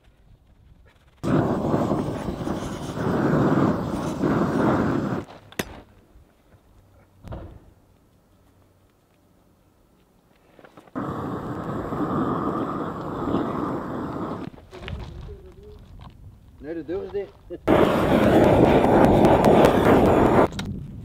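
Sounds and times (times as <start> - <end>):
gas torch burning: 1.2 - 5.3, 10.9 - 14.6, 17.6 - 20.7.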